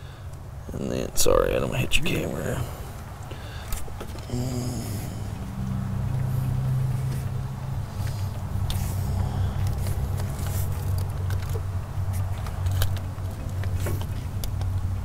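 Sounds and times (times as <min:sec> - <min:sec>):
steady low hum: 0:00.0 - 0:15.0
light clicks and rustling: 0:09.6 - 0:15.0.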